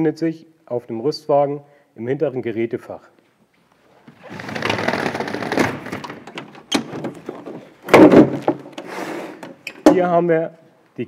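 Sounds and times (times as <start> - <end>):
roller shutter rattling open: 4.2 - 9.0.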